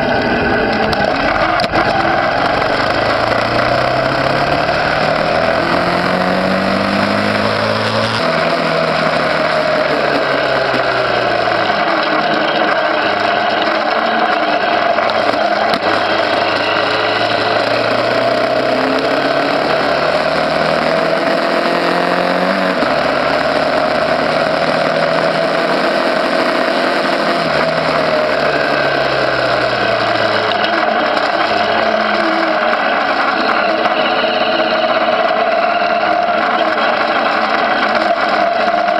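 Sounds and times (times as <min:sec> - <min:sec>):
small motorcycle engine revving: 0:00.0 - 0:38.9
wind and road noise: 0:00.0 - 0:38.9.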